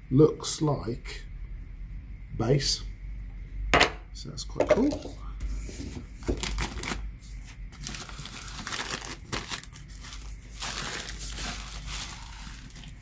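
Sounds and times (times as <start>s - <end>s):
plastic bag crinkling: 7.7s - 13.0s.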